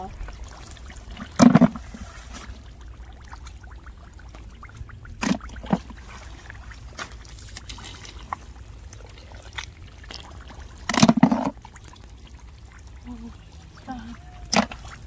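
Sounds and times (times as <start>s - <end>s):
wet mud squelches and clicks: 3.3s - 13.8s, 14.4s - 15.0s.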